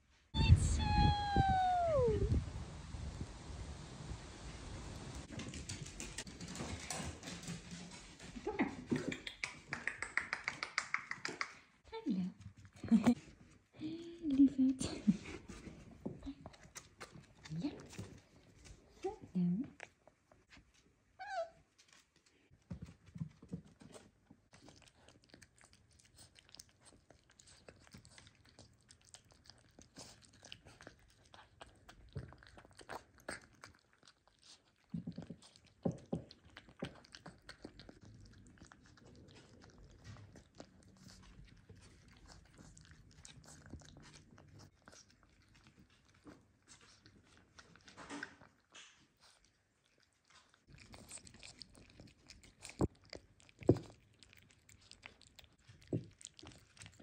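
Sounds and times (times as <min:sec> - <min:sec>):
puppy chewing wet food: 0:12.4 - 0:19.1, 0:21.8 - 0:57.0.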